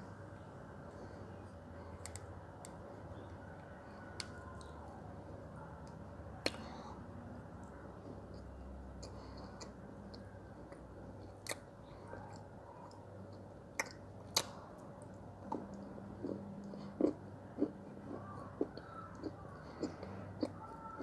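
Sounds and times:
person chewing: 7.6s - 21.0s.

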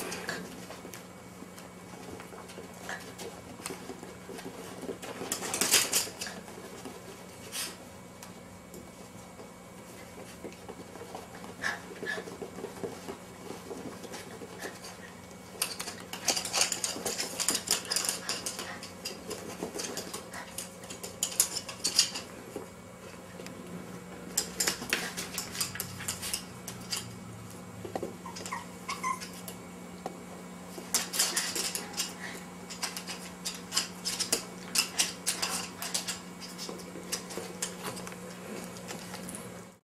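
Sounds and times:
dog claws clicking on wooden floor: 10.2s - 22.3s, 30.8s - 39.4s.

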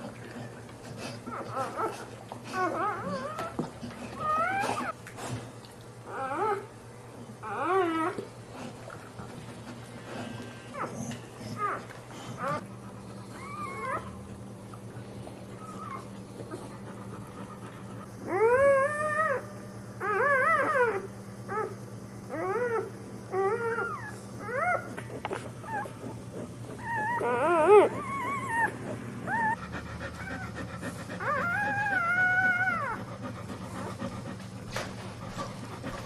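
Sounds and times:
puppies squealing: 25.6s - 29.6s, 31.2s - 33.0s.

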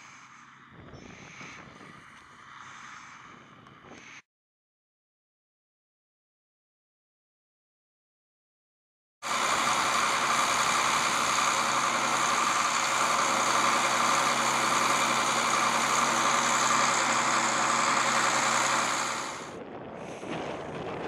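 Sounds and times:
tractor engine running: 9.2s - 19.6s.

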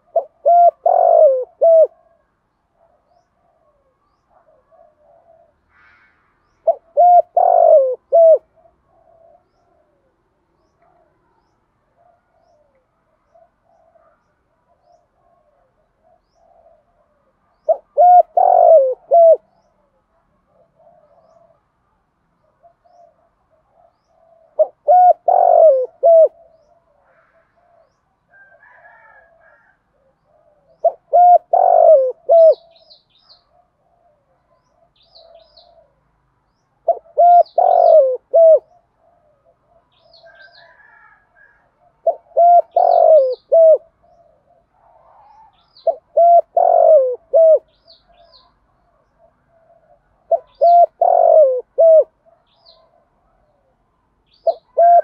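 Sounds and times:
dove cooing: 0.0s - 5.8s, 6.6s - 21.7s, 22.4s - 36.0s, 36.8s - 55.0s
small birds chirping: 30.0s - 41.1s, 42.0s - 51.6s, 52.2s - 55.0s.

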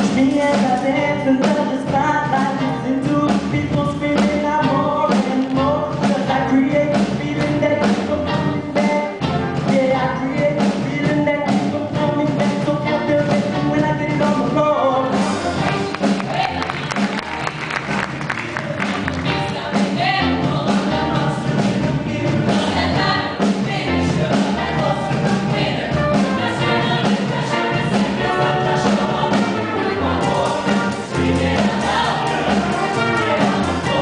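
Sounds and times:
band accompaniment: 0.0s - 34.0s
steady drum beat: 0.0s - 34.0s
choir singing: 19.4s - 34.0s.

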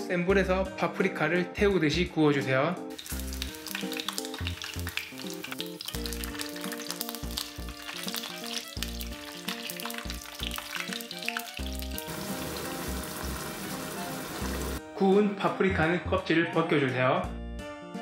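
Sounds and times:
background music: 0.0s - 18.0s
oil sizzling and popping: 2.9s - 14.8s.

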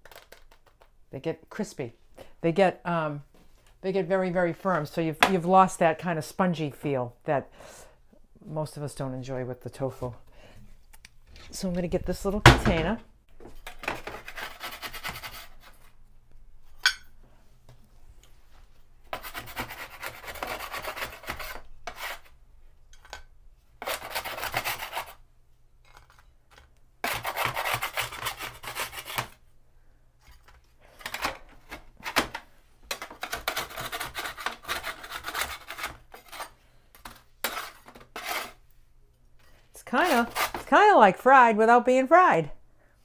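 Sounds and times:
scraping food off a baking pan: 32.9s - 38.6s.

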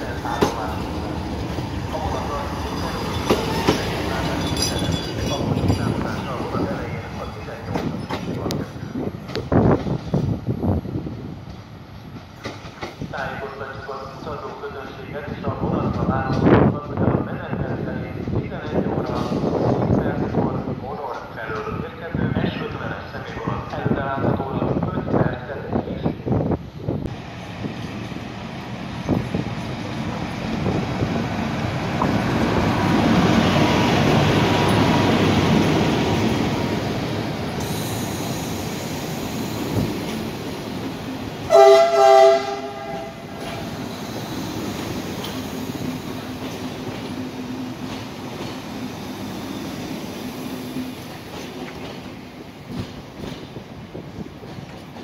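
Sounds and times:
train wheels clattering on rails: 0.0s - 10.3s, 12.2s - 13.2s, 42.5s - 50.2s, 50.8s - 55.0s
train horn blasts: 41.5s - 43.3s.

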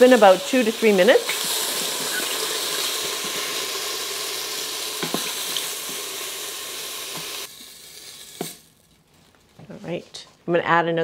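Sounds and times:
mushrooms sizzling in hot oil: 0.0s - 8.8s.

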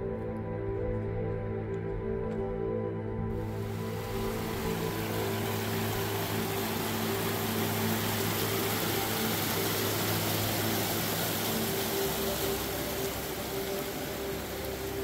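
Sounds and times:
soft background music: 0.0s - 15.0s
creek rushing: 3.4s - 15.0s.

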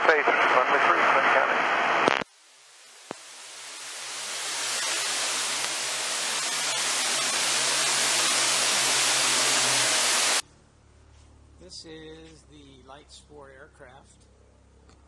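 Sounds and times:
aircraft engine and propeller: 3.3s - 10.4s.

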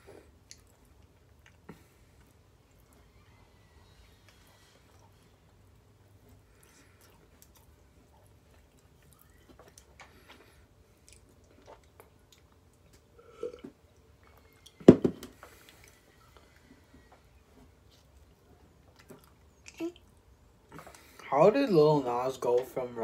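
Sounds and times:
chewing with wet mouth clicks: 0.3s - 3.0s, 4.2s - 14.8s, 17.8s - 21.2s.

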